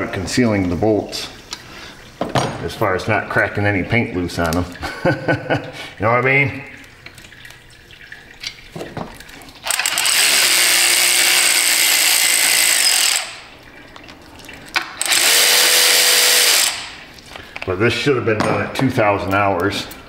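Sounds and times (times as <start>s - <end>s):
electric ratchet motor whine: 9.7s - 13.5s, 15.0s - 17.0s.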